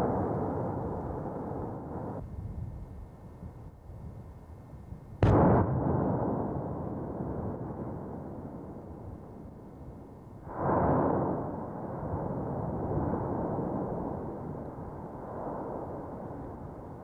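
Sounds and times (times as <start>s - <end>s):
loud explosive blast: 5.2s - 8.2s
volcano rumbling: 10.6s - 17.0s.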